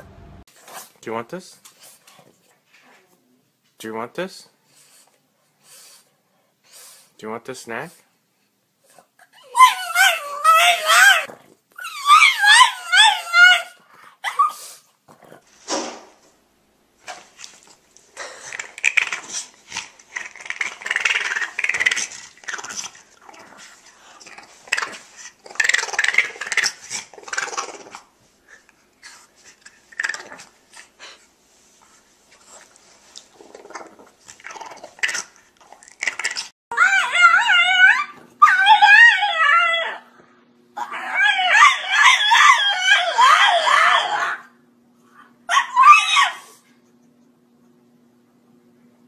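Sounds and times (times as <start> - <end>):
small dog grumbling and whining: 8.9 - 15.4, 36.3 - 40.2, 40.8 - 44.5, 45.5 - 46.6.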